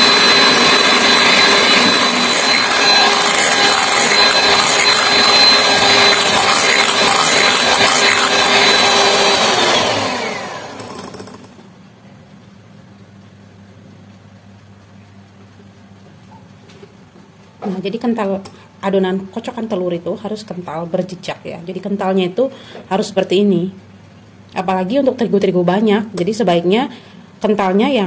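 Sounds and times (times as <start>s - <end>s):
electric hand mixer whining: 0.0s - 11.6s.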